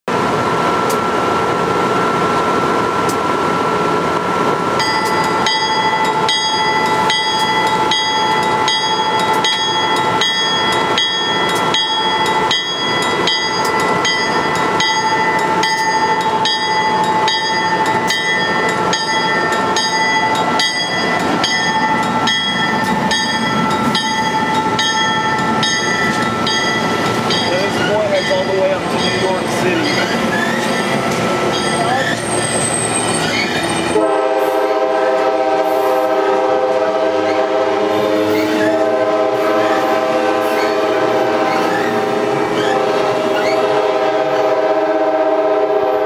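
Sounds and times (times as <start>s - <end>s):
electric locomotive whine: 0.1s - 46.0s
locomotive bell ringing: 4.8s - 35.0s.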